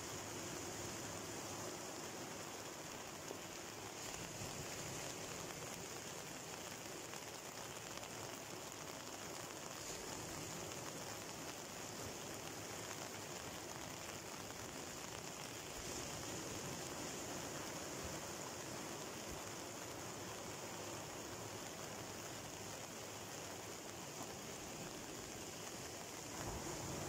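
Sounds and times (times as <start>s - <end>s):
rain: 0.0s - 27.0s
surf washing onto beach: 0.0s - 27.0s.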